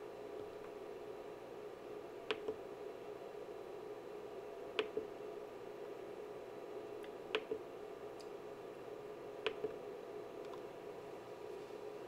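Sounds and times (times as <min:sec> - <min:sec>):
faint steady hum: 0:00.0 - 0:12.0
oscilloscope button clicks: 0:02.3 - 0:02.6.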